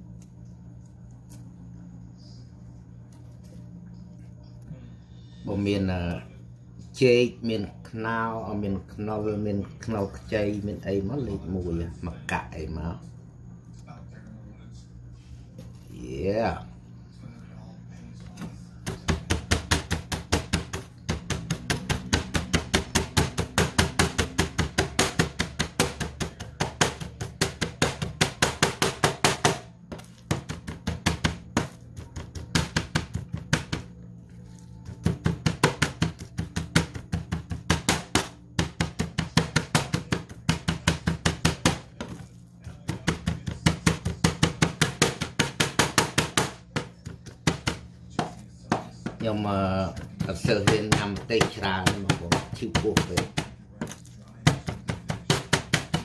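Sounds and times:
cleaver chopping on cutting board: 18.8 - 33.9, 34.8 - 56.0.

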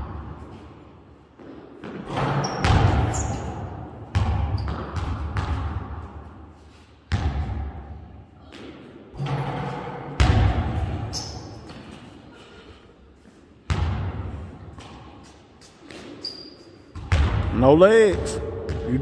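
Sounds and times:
basketball thudding in gym: 1.4 - 6.2, 7.1 - 12.0, 13.7 - 15.2, 16.9 - 17.5
high squeak: 11.1 - 11.7.

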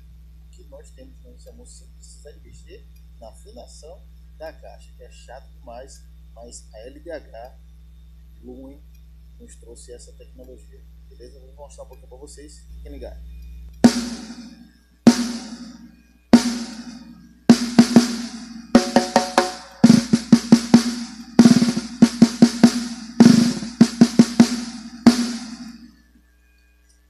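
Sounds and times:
snare drum strokes: 13.8 - 25.9.

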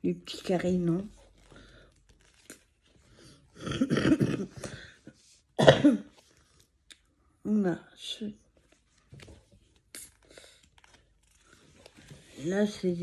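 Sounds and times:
woman coughing: 3.6 - 4.7, 5.6 - 6.1.

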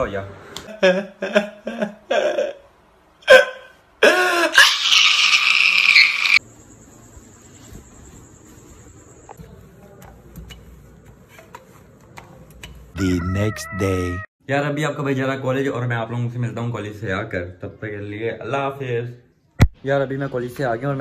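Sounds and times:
man wailing with distortion: 13.0 - 14.3.

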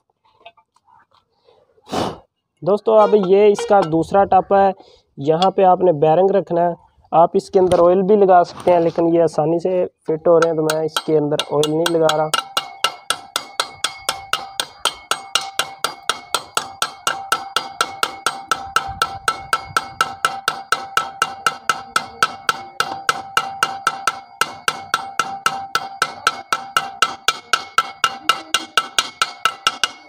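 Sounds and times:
hammer blows on steel rod: 3.0 - 4.1.

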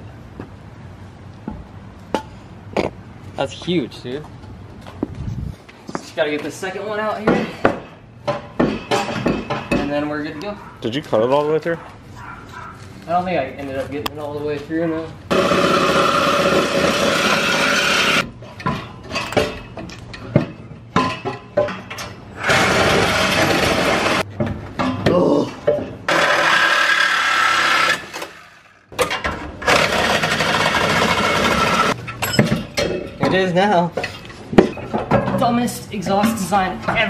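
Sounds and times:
reciprocating saw cutting metal pipe: 15.3 - 18.2, 22.4 - 24.2, 26.1 - 28.4.

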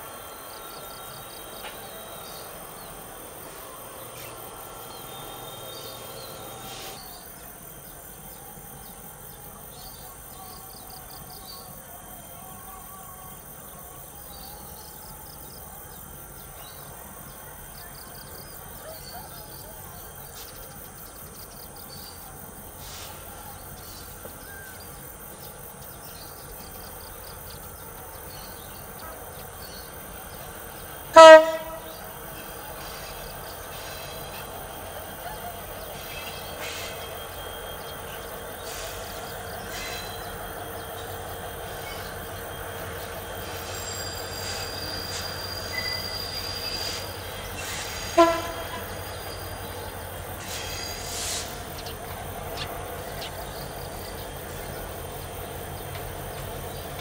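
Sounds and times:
train engines and wheels rumbling: 0.0 - 57.0
locomotive horn blasts: 31.1 - 32.1, 48.0 - 49.0.

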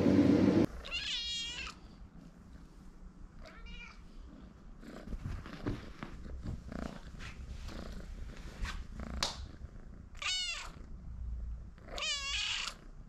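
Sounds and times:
kitten meowing: 0.8 - 1.8, 10.2 - 10.8, 11.9 - 12.8
cat purring: 4.2 - 10.2.

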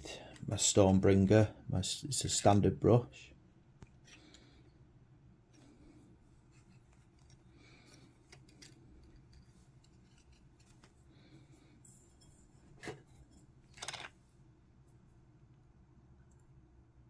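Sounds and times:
faint handling of plastic model: 3.7 - 4.8, 5.4 - 15.0.

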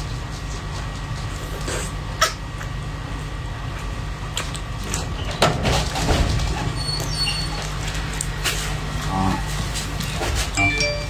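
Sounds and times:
wet mouth eating sounds: 3.7 - 5.0.

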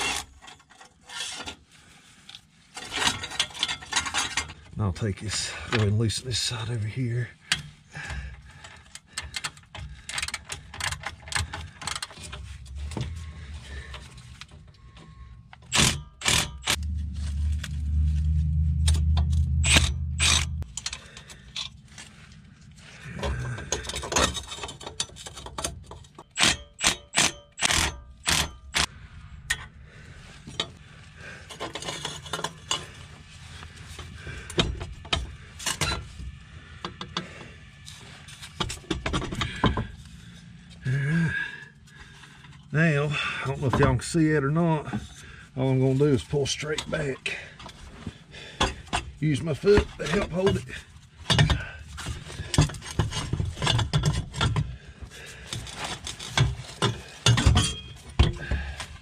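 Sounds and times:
loud low rumble: 16.8 - 20.7
ratchet wrench clicking: 26.4 - 28.9.

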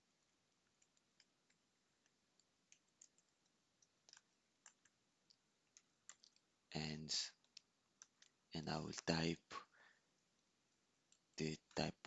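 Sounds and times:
computer keyboard typing: 0.6 - 5.0.

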